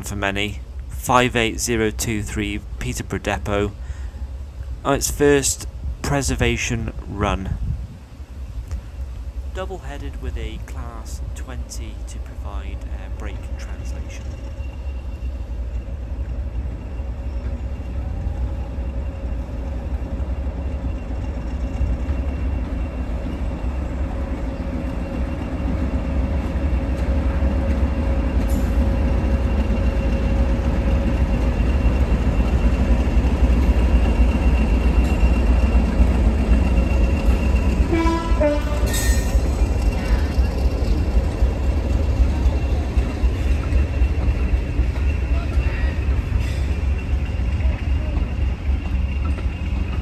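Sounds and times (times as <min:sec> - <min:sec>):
locomotive engine drone: 0:00.0 - 0:50.0
locomotive horn: 0:37.9 - 0:39.3.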